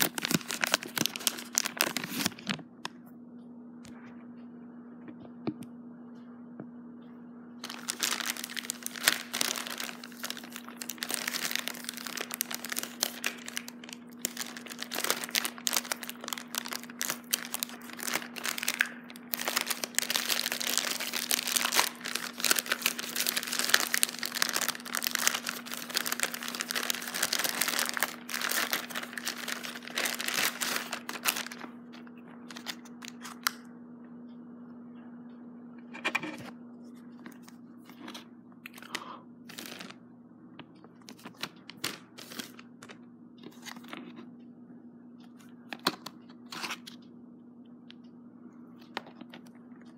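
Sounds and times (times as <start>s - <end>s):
packaging wrap crackling: 0.0s - 2.6s, 7.6s - 33.6s, 38.8s - 40.0s, 41.0s - 43.0s
steady low hum: 0.0s - 49.9s.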